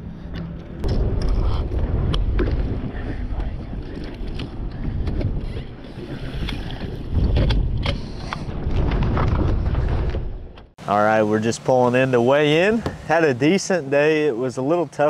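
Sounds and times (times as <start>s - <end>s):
wind buffeting microphone: 0.0s - 10.8s.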